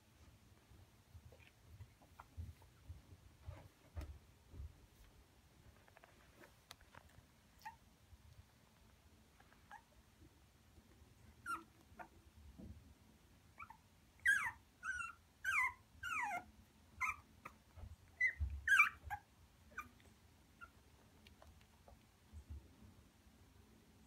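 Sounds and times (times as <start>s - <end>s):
puppies whimpering: 13.6s - 20.8s.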